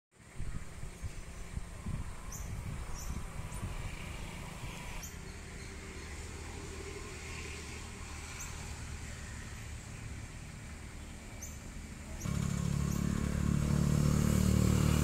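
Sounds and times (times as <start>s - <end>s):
diesel engine running slowly: 5.2s - 15.0s.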